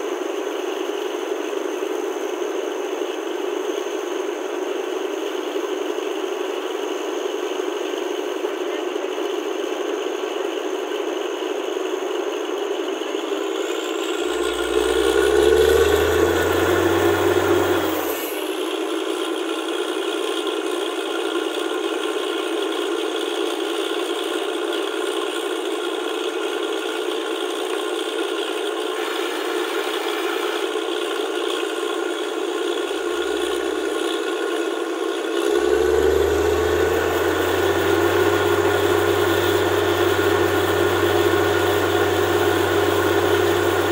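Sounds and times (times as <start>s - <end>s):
engine whining under load: 13.1s - 24.3s, 27.2s - 43.9s.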